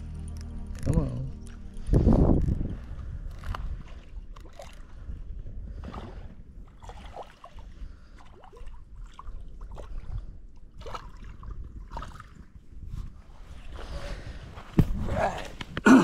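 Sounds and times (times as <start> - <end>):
wind rumbling on microphone: 0.7 - 15.8
water trickling and gurgling: 1.4 - 12.7.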